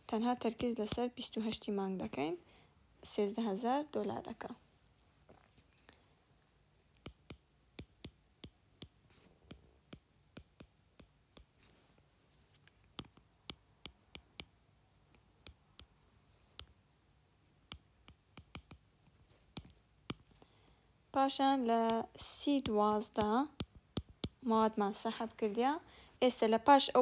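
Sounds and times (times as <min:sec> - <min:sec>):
stylus tapping on glass screen: 0:13.0 - 0:15.9, 0:17.7 - 0:18.8, 0:21.8 - 0:24.4.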